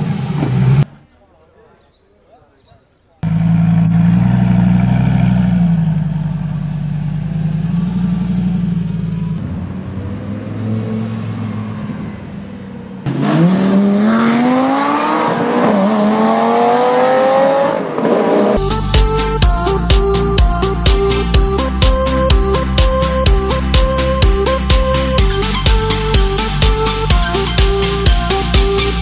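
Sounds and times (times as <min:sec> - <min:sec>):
car engine revving and accelerating: 0:03.2 - 0:18.6
electronic music with steady beat: 0:18.6 - 0:29.0.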